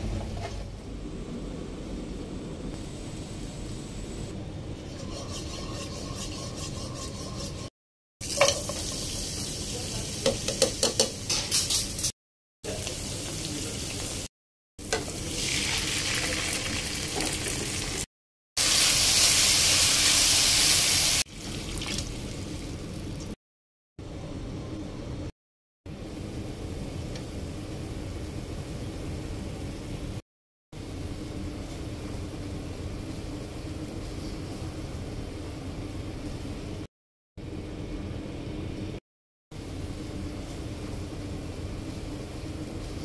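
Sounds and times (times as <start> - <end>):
spatula stirring and tapping pot: 4.9 - 7.7
onion sizzling in oil: 8.2 - 11.1, 12.7 - 23.2.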